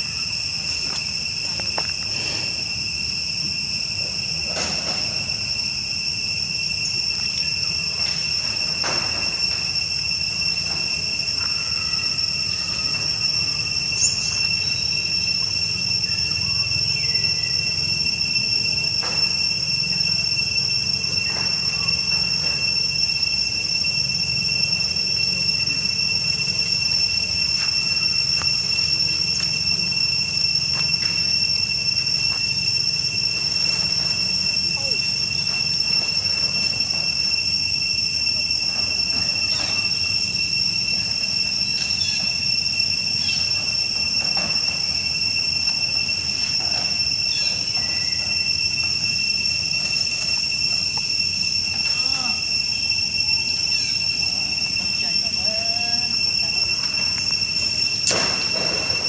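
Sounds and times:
high-pitched insect drone: 0:00.0 - 0:59.0.

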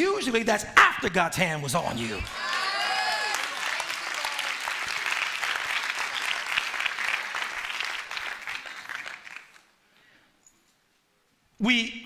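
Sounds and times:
congregation applauding: 0:02.2 - 0:09.8.

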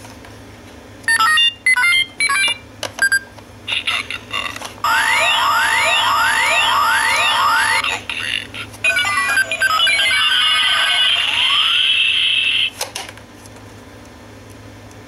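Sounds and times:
looping rising electronic sweeps: 0:04.8 - 0:08.1.

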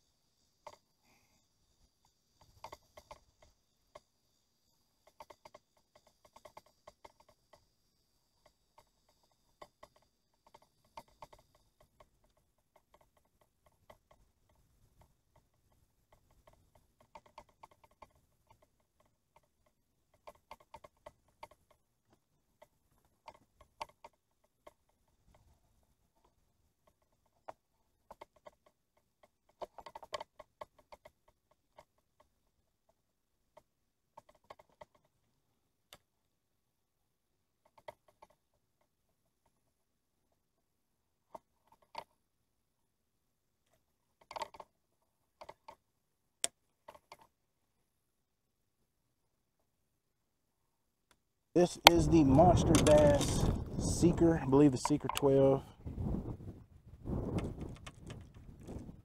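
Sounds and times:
fishing reel clicking: 0:51.6 - 0:55.6.

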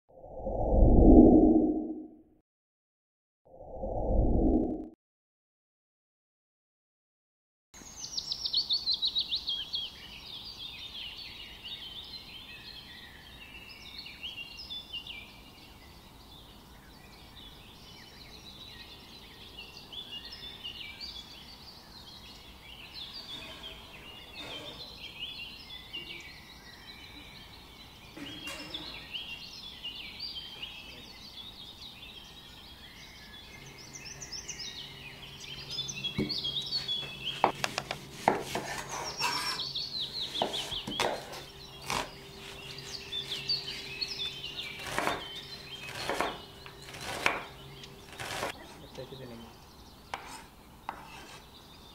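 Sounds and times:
songbirds chirping and singing: 0:07.8 - 0:51.9
knocks on wooden cutting board: 0:36.2 - 0:36.4.

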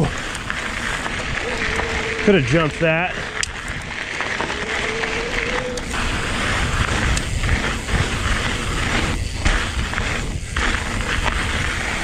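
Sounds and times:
bike rattling: 0:00.0 - 0:12.0
tyres rolling over gravel: 0:00.0 - 0:12.0
wind rushing over microphone: 0:00.0 - 0:12.0.

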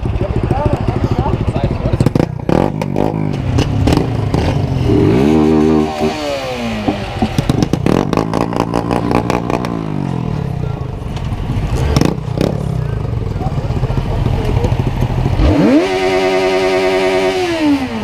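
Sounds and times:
motorcycle engine revving: 0:00.0 - 0:18.0
sharp clattering pops: 0:02.0 - 0:04.6, 0:06.8 - 0:09.8.

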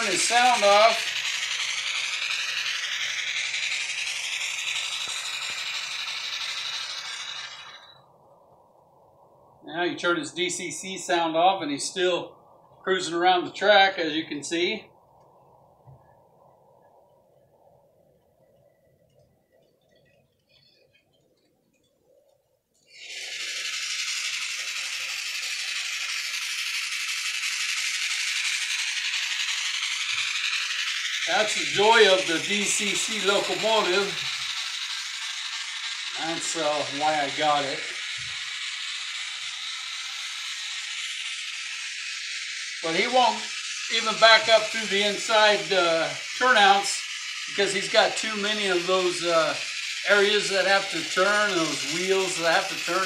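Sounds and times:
hissing steam chuff from small speaker: 0:00.0 - 0:08.0, 0:22.9 - 0:53.0.

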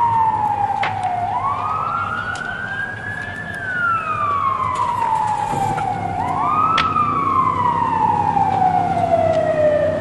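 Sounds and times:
emergency siren wailing: 0:00.0 - 0:10.0.

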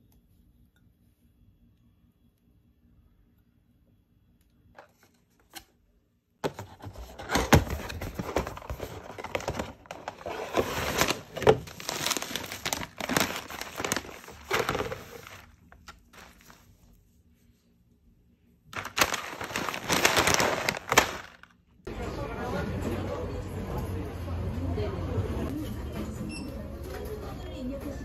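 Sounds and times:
cereal packaging crinkling: 0:07.9 - 0:16.7, 0:18.8 - 0:21.6.

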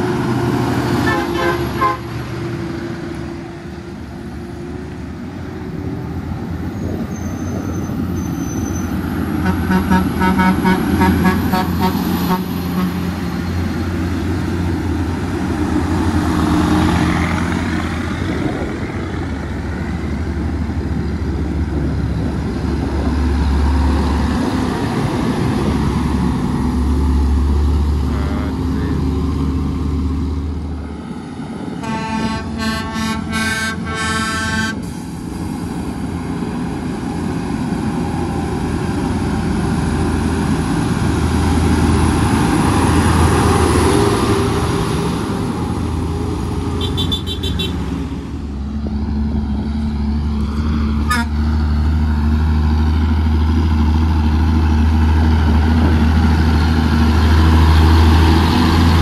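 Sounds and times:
diesel truck engine drone: 0:00.0 - 0:59.0
vehicle horn short blasts: 0:01.1 - 0:02.0, 0:31.8 - 0:34.8, 0:46.8 - 0:47.8, 0:51.1 - 0:51.3.

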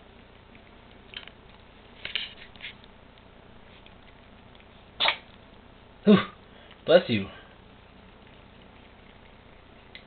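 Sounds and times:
cats nibbling and sniffing: 0:00.0 - 0:10.0
cat sneeze: 0:05.0 - 0:05.2.

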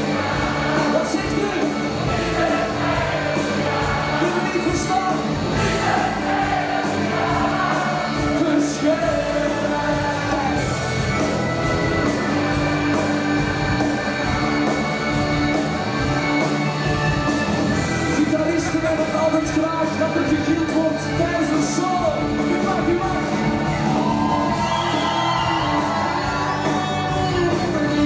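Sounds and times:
drum beat: 0:00.0 - 0:16.4
wind band playing rock song: 0:00.0 - 0:28.0
man singing: 0:04.2 - 0:05.3, 0:08.2 - 0:10.7.

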